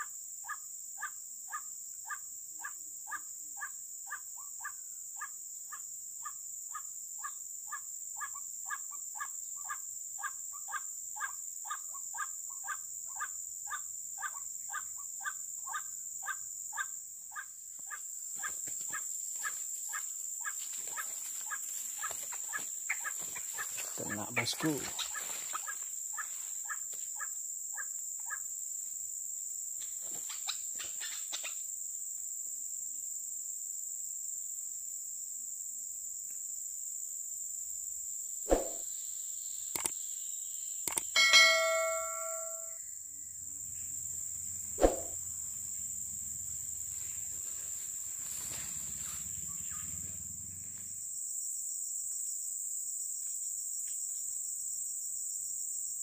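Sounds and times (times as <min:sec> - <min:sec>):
high-pitched insect drone: 0:00.0 - 0:28.9, 0:36.6 - 0:56.0
short ringing tone: 0:41.2 - 0:42.8.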